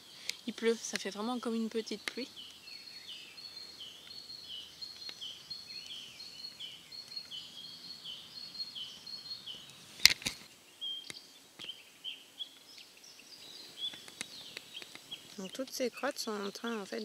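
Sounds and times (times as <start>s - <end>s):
songbird repeating high phrase: 0.4s - 9.5s, 15.3s - 17.0s
droppings ticking on dry leaves: 4.8s - 7.4s, 12.4s - 17.0s
sharp loud clicks: 10.0s - 10.5s.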